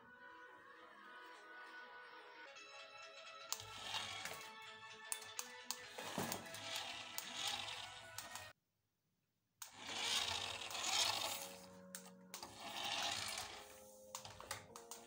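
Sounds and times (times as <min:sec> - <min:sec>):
toy car motor whirring: 0:03.5 - 0:04.5, 0:05.7 - 0:08.5, 0:09.6 - 0:14.6.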